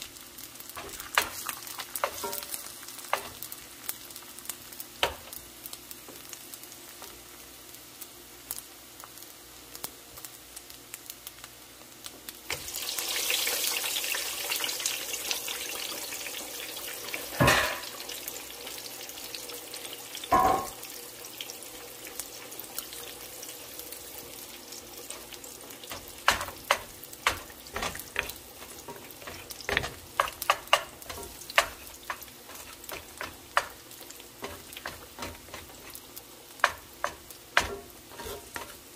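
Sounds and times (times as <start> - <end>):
eggs sizzling in a pan: 0.0 - 38.9
wooden spatula scraping a pan: 25.0 - 38.9.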